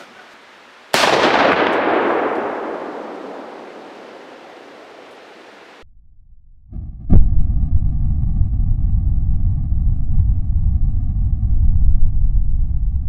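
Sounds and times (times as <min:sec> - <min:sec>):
rifle shot echoing: 0:00.9 - 0:05.8.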